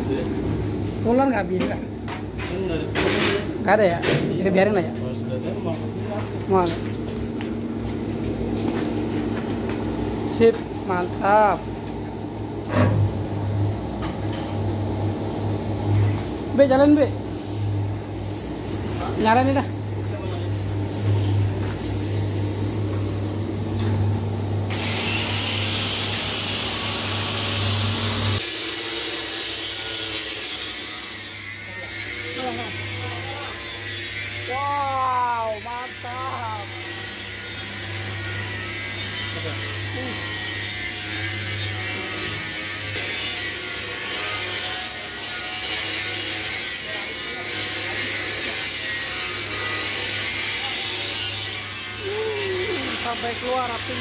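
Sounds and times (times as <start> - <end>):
electric motors humming: 0.0 - 54.0
electric blower humming: 20.7 - 29.0.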